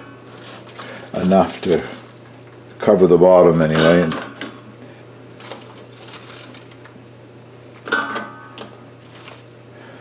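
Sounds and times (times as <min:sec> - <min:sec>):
peas clicking and rustling: 0:05.4 - 0:07.0, 0:09.1 - 0:09.5.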